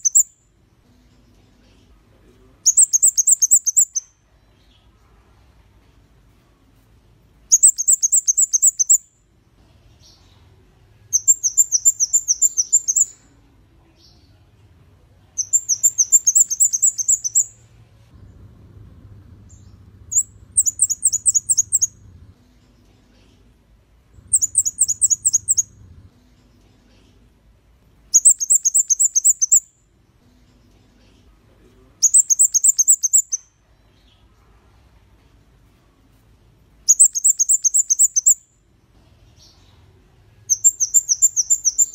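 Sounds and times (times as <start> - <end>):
bird singing high falling notes: 15.4 - 17.6, 19.4 - 22.1, 24.2 - 25.9.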